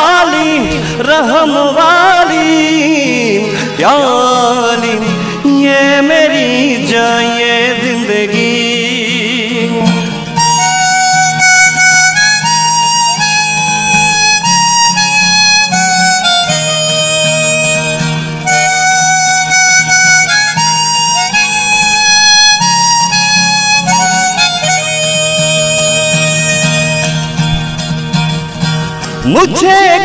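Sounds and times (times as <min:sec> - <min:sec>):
harmonica melody: 0:00.0 - 0:30.0
strummed acoustic guitar: 0:00.0 - 0:30.0.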